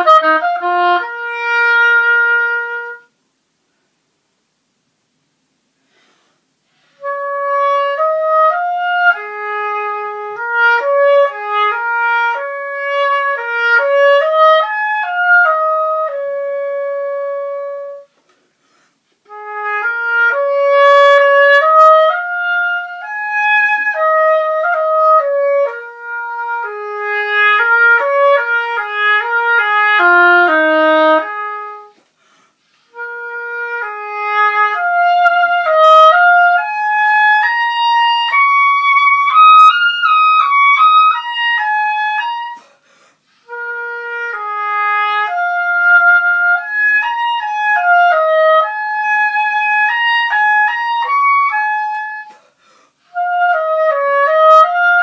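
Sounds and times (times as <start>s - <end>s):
solo oboe melody: 0.0s - 3.2s, 6.8s - 18.3s, 19.2s - 55.0s.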